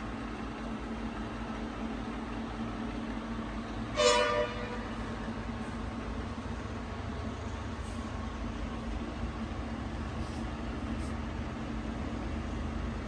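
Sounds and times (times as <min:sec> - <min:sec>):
lathe running with low hum: 0:00.0 - 0:13.0.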